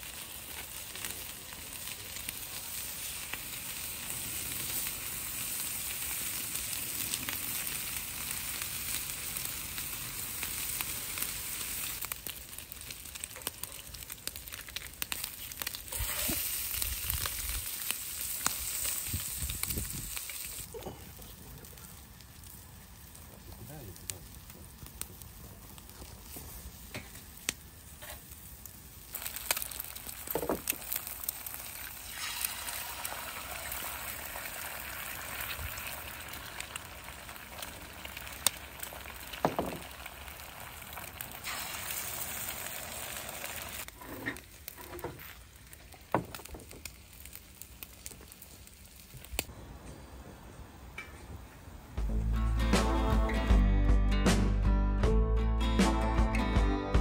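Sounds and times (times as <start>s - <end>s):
food sizzling in a pan: 0.0s - 20.8s, 24.4s - 49.5s
music: 52.0s - 57.0s.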